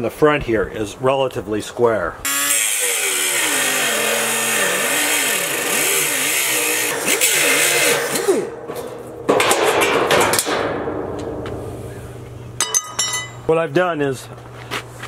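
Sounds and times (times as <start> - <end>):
angle grinder grinding metal: 2.3 - 8.6.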